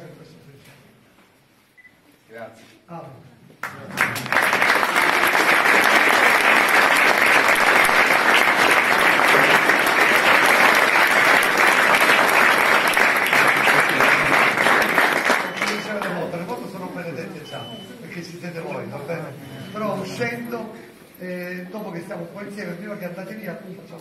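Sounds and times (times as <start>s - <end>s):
crowd applauding: 3.6s - 16.4s.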